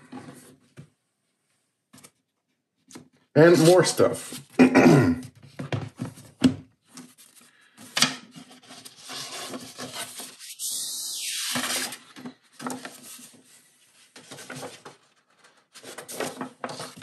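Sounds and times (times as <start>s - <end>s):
paper sliding against card: 8.6s - 12.1s, 12.7s - 13.6s.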